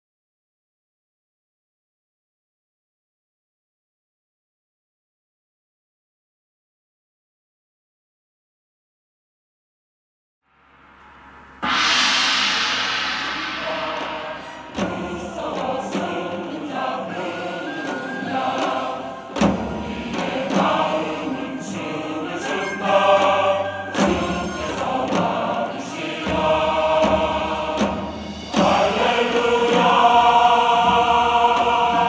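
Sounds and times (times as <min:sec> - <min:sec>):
choir singing: 0:11.6 - 0:32.0.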